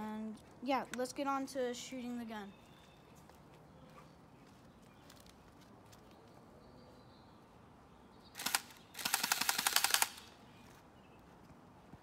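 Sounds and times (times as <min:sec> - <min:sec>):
airsoft pistol firing full auto: 0:08.4 - 0:10.3.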